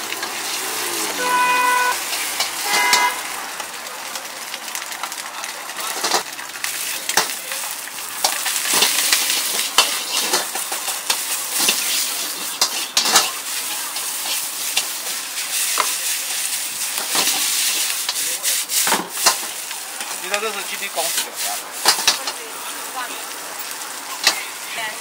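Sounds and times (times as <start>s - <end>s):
food sizzling in a wok: 0.0s - 25.0s
metal ladle scraping a wok: 8.2s - 19.6s.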